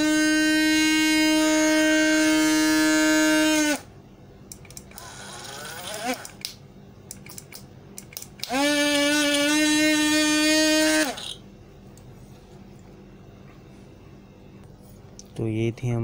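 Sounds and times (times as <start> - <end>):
blender motor whining: 0.0 - 3.9, 4.9 - 6.4, 8.4 - 11.4.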